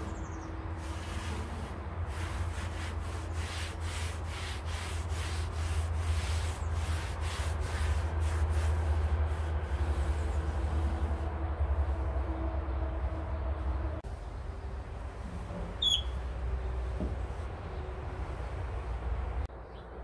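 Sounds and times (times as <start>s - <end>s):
steady low hum: 4.8s - 19.5s.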